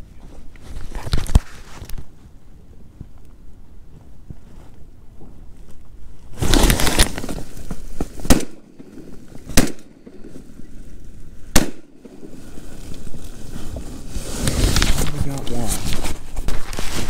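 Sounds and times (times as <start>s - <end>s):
burst of handling noise: 6.3s - 10.6s, 11.4s - 17.0s
shotgun shots: 8.2s - 8.9s, 9.5s - 10.3s, 11.5s - 12.3s.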